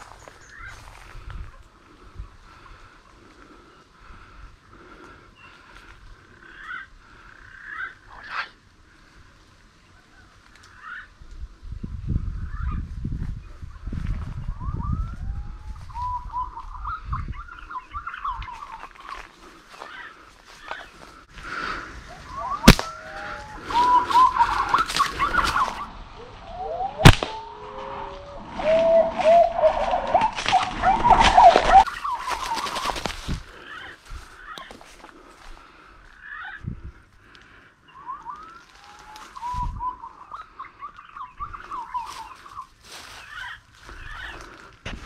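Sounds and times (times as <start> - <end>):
whistled bird calls: 14.4 - 19.2, 22.1 - 32.9, 37.9 - 44.3.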